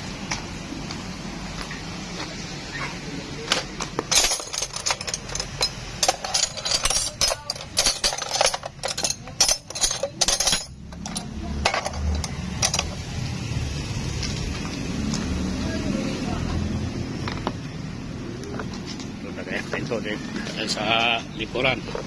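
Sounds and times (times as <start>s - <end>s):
metal tools clinking: 3.5s - 13.0s.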